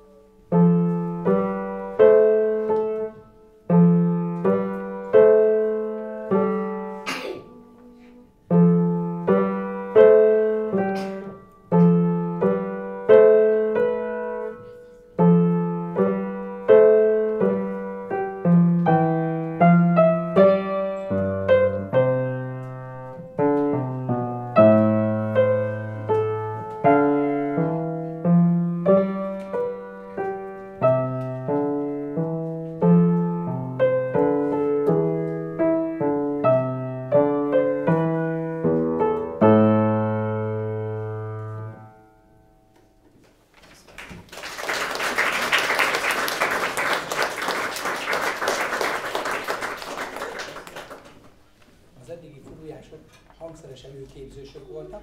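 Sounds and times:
solo piano piece: 0:00.0 - 0:43.5.

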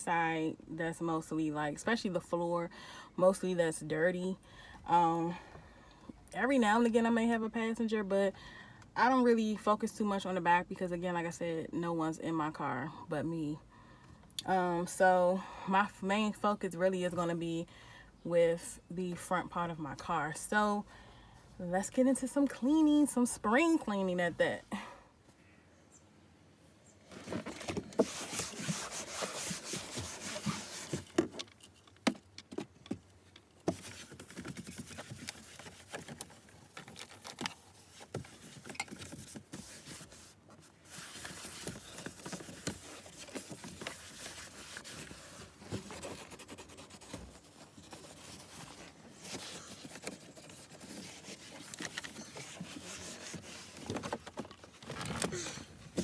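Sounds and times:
cloth rubbing on plastic: 0:27.2 - 0:31.2, 0:33.7 - 0:56.0.

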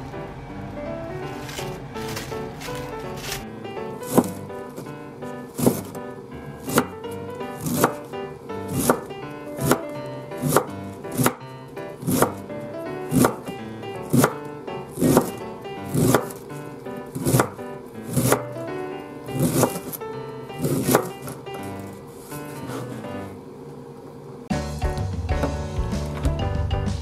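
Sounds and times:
background music: 0:00.0 - 0:23.4, 0:24.5 - 0:27.0
knife chopping on cutting board: 0:04.1 - 0:04.4, 0:05.6 - 0:06.0, 0:06.6 - 0:07.0, 0:07.6 - 0:08.1, 0:08.7 - 0:11.4, 0:12.0 - 0:12.4, 0:13.1 - 0:14.4, 0:15.0 - 0:16.4, 0:17.1 - 0:18.5, 0:19.4 - 0:20.0, 0:20.6 - 0:21.4.

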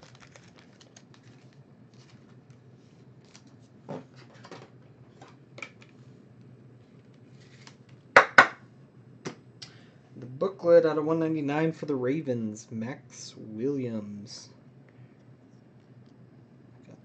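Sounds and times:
card packs rustling: 0:00.0 - 0:04.5.

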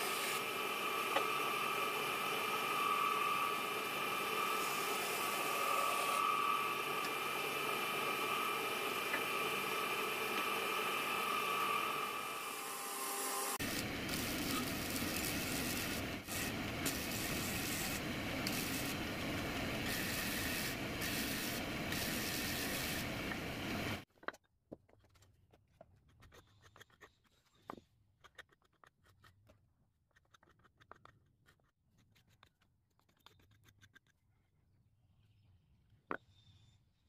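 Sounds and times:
bandsaw whining: 0:00.0 - 0:24.0
disc sander grinding wood: 0:00.0 - 0:24.0.

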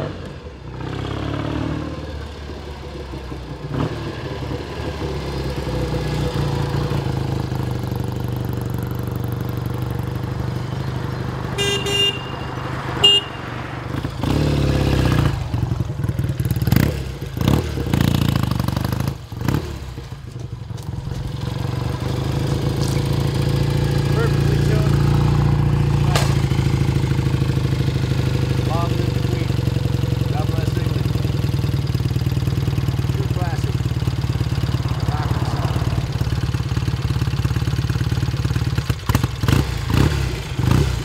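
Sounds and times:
motorcycle engine revving: 0:00.0 - 0:41.0
motorcycle engine running: 0:00.0 - 0:41.0
short horn beeps: 0:11.6 - 0:13.6.

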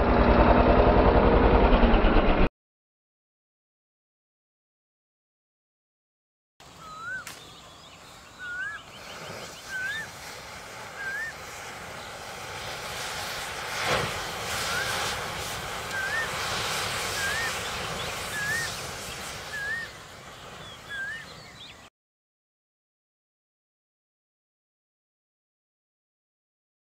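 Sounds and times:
matches flaring and hissing: 0:06.6 - 0:21.6
bird upslurred whistle: 0:06.8 - 0:07.5, 0:08.3 - 0:10.2, 0:10.9 - 0:11.4, 0:14.6 - 0:15.0, 0:15.9 - 0:16.5, 0:17.1 - 0:20.0, 0:20.6 - 0:21.8.

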